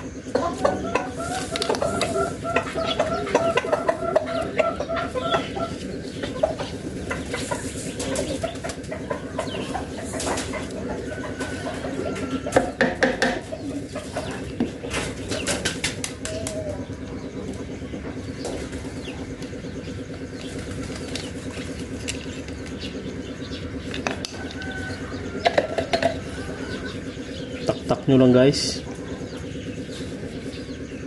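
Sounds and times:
chicken clucking: 0.2s - 27.8s.

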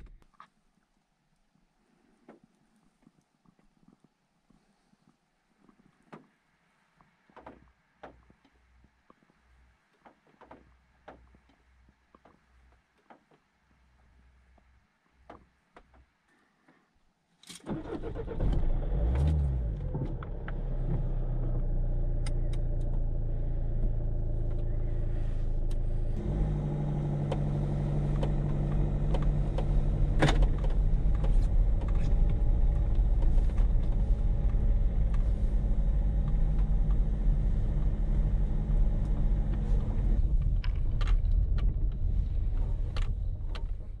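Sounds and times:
car engine idling and pulling: 17.6s - 44.0s.

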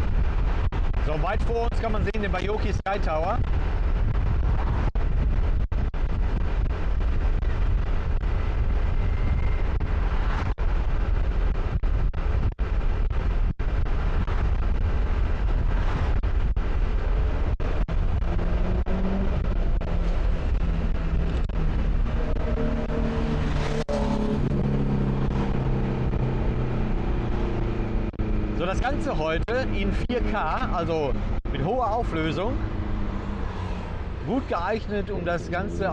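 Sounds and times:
wind buffeting microphone: 0.0s - 35.7s
passing vehicle engine: 16.8s - 35.9s.

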